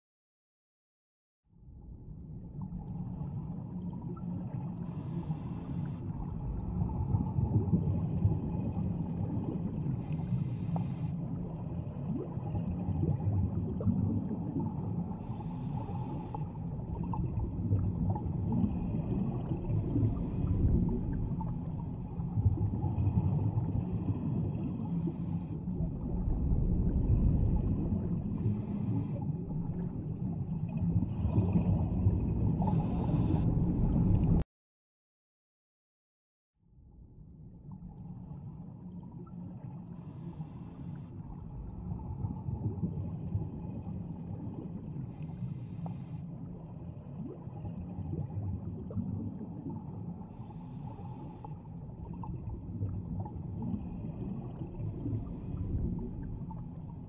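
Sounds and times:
exhaled bubbles rumbling: 1.6 - 34.4, 37.0 - 57.0
regulator inhale hiss: 4.8 - 6.1, 10.0 - 11.2, 15.2 - 16.6, 28.3 - 29.3, 32.6 - 33.6, 40.0 - 41.1, 45.1 - 46.3, 50.3 - 51.6.

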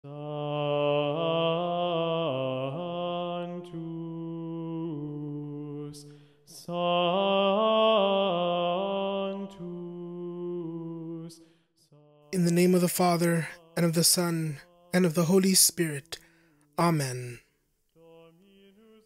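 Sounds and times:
low voice chanting: 12.0 - 16.2, 16.8 - 19.0.

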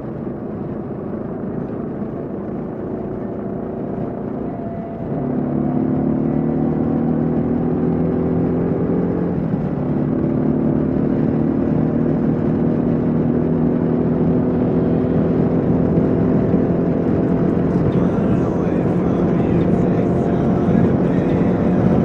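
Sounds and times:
motorcycle engine cruising: 0.0 - 22.0
wind noise on microphone: 0.0 - 22.0.

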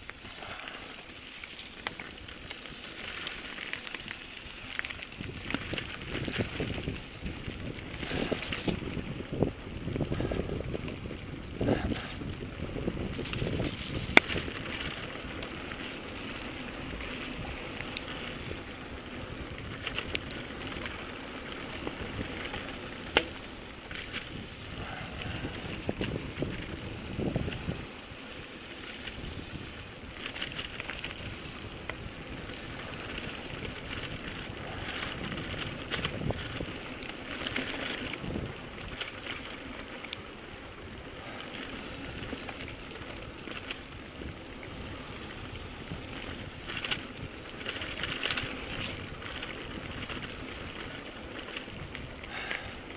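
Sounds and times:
bike clacking and rattling: 0.0 - 52.9
bike tyres crunching over stones: 0.0 - 52.9
wind buffeting microphone: 0.0 - 52.9.

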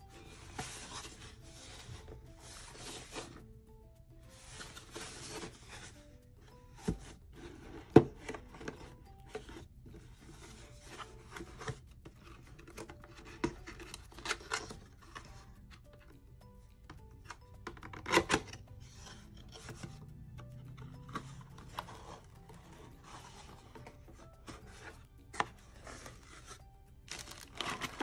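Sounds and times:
soft background music: 0.0 - 28.0.

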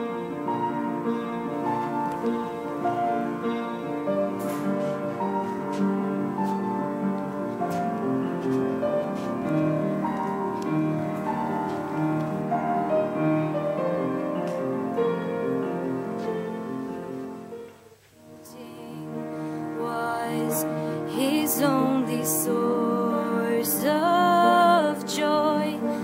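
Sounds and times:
slow piano chords: 0.0 - 26.0.

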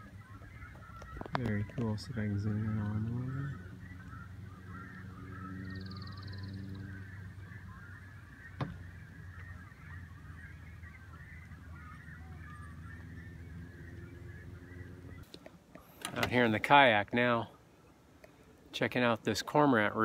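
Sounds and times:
cormorants calling: 0.0 - 15.3.

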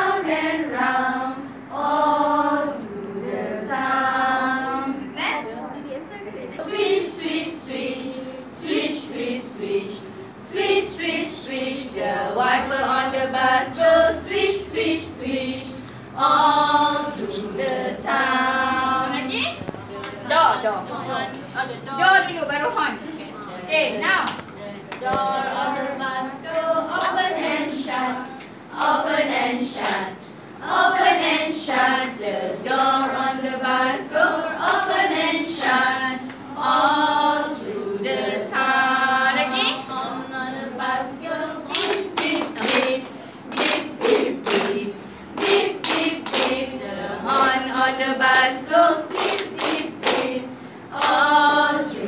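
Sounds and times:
women singing together: 0.0 - 5.2, 6.6 - 22.2, 23.6 - 52.0
hand claps: 41.7 - 44.8, 45.4 - 46.6, 49.1 - 51.3.

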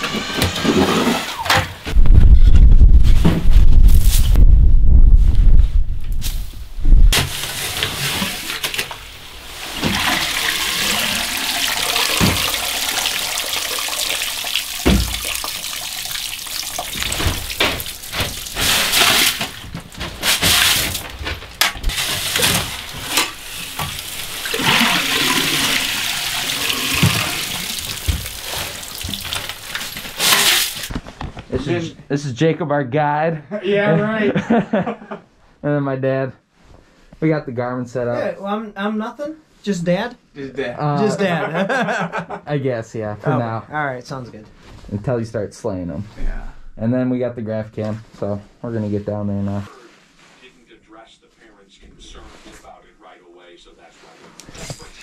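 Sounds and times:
loud low rumble: 2.0 - 6.0
water splashing into a bucket: 9.6 - 21.1, 21.9 - 30.9.

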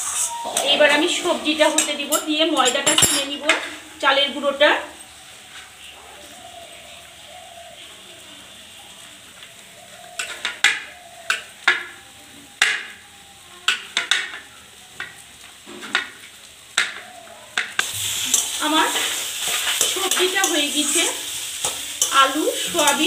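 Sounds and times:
faint sizzle in a pan: 0.0 - 23.0.

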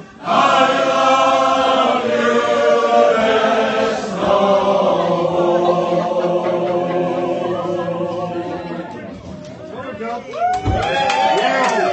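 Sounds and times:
crowd singing together: 0.0 - 9.6.

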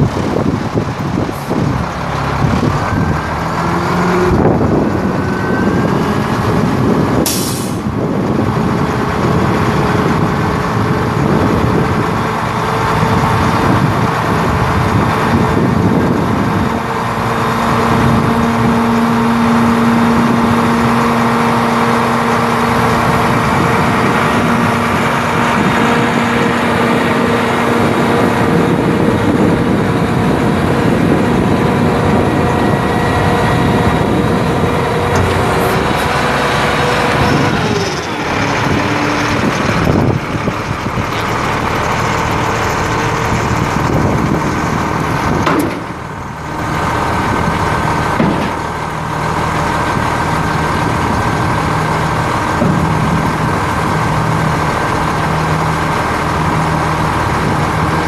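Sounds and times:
diesel truck engine running: 0.0 - 58.0
hydraulic hoist lowering dump bed: 17.0 - 55.4.

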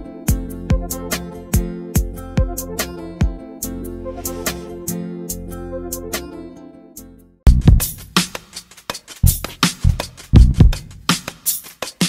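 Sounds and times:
instrumental music with regular beat: 0.0 - 6.4, 7.4 - 12.0.

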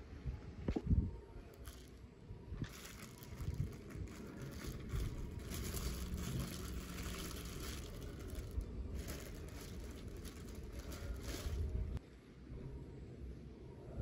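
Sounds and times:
low background rumble: 0.0 - 14.0
plastic bag crinkling: 1.5 - 2.0, 2.6 - 12.0.

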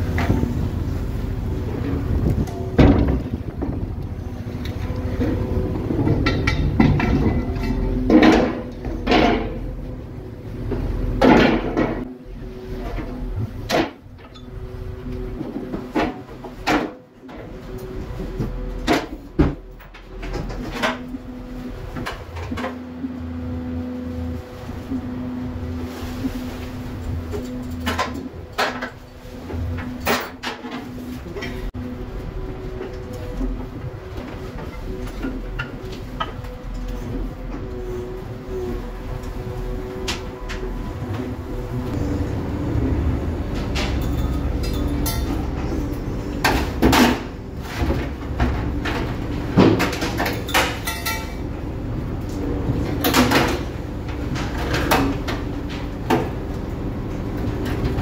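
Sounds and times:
wind noise: 0.0 - 7.7
boat engine rumbling: 0.0 - 58.0
deck machinery hum: 0.0 - 58.0.

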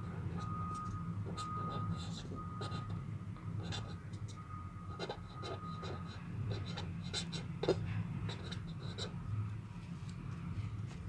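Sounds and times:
steady low hum: 0.0 - 11.0
pen scratching on paper: 1.3 - 2.9, 3.6 - 4.0, 4.9 - 9.2.

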